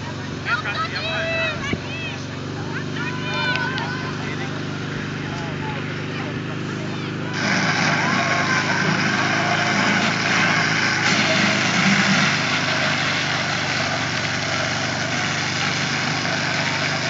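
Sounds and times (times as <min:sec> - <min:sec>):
pump engine running: 0:00.0 - 0:17.0
water spraying from jets: 0:06.3 - 0:17.0.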